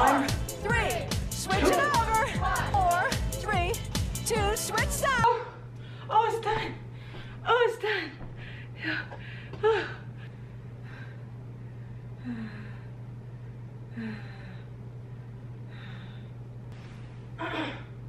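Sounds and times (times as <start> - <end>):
woman breathing hard: 8.3 - 16.4
woman groaning: 17.4 - 18.0.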